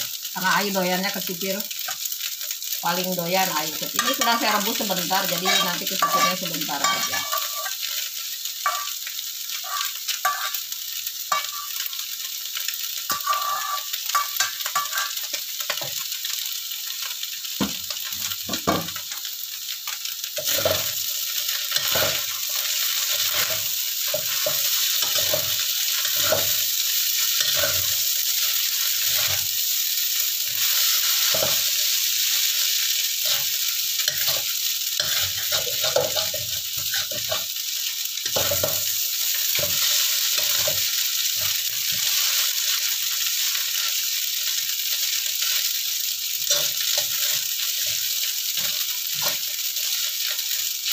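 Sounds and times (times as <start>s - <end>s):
noodles sizzling in a wok: 0.0s - 50.9s
spatula scraping a wok: 5.3s - 10.6s, 11.3s - 12.0s, 13.1s - 16.0s, 20.4s - 29.5s, 30.5s - 32.4s, 33.2s - 37.5s, 38.2s - 42.9s, 46.5s - 50.9s.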